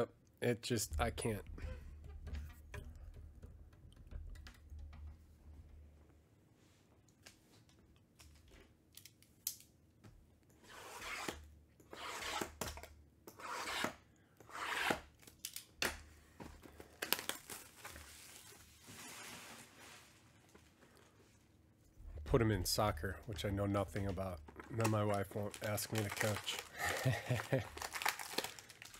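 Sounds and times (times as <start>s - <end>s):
plastic shrink-wrap ripping: 16.9s - 19.8s, 24.6s - 28.9s.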